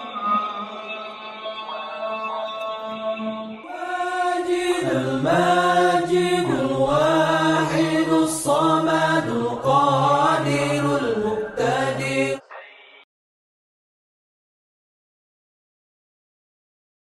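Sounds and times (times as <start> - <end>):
voice chanting long sliding notes: 0.0 - 12.5.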